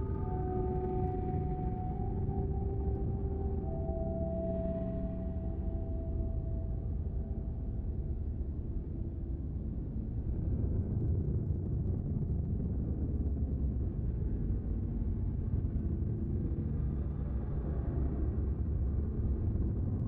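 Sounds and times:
low rumbling drone: 0.0 - 12.6.

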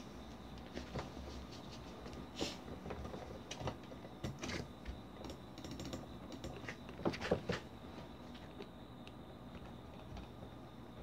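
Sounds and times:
computer keyboard typing: 5.2 - 7.0.

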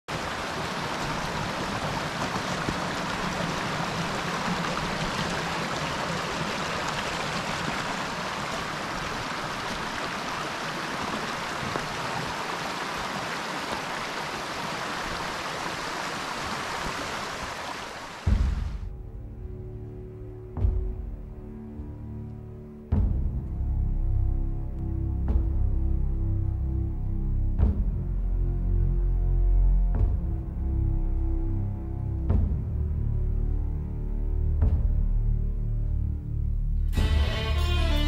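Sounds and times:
stream running over rocks: 0.1 - 18.7.

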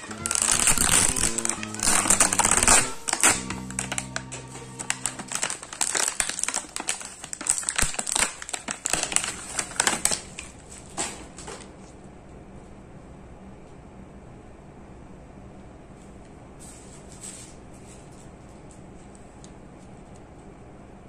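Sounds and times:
background music: 0.0 - 6.5
plastic packaging crinkling: 0.0 - 10.9.

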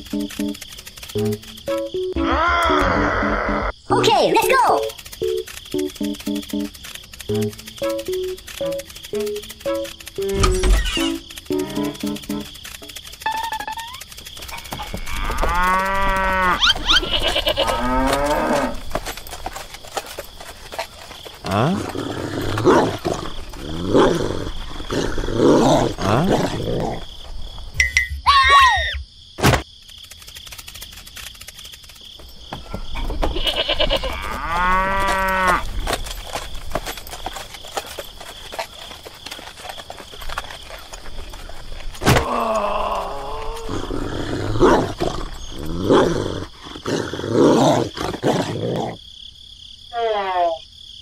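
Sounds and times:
farm animals calling: 0.0 - 12.4, 13.2 - 19.0, 32.7 - 35.7.

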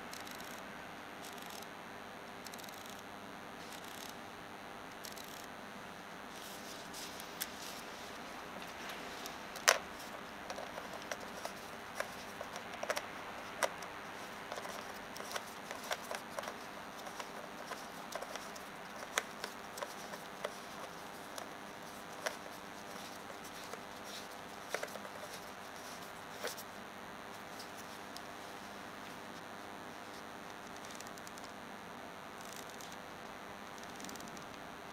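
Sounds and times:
camera lens clicks and ticks: 5.0 - 5.5.

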